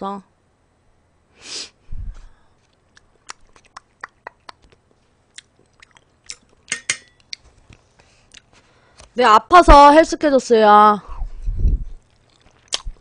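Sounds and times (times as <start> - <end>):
close chewing: 2.5 - 8.6, 11.9 - 13.0.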